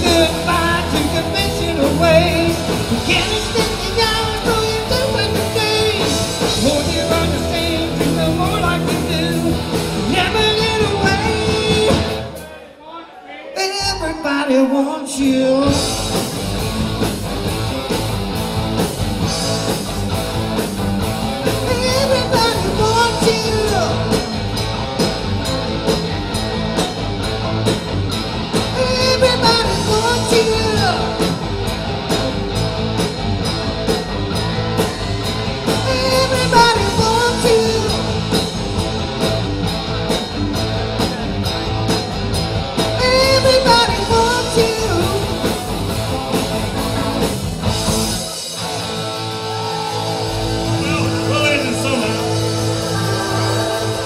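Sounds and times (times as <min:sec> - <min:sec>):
person singing: 0:00.0 - 0:12.4, 0:21.4 - 0:24.4, 0:28.6 - 0:31.4, 0:33.9 - 0:38.3, 0:42.9 - 0:45.6, 0:49.4 - 0:54.0
steady drum beat: 0:00.0 - 0:12.5, 0:15.7 - 0:54.0
live rock and roll band: 0:00.0 - 0:12.8, 0:13.6 - 0:54.0.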